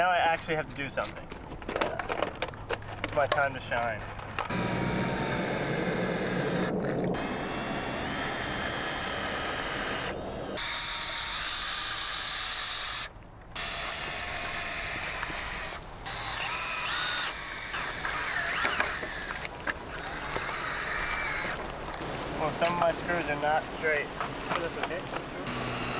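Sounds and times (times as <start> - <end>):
cordless drill driving screws: 4.5 - 21.6, 25.4 - 25.9.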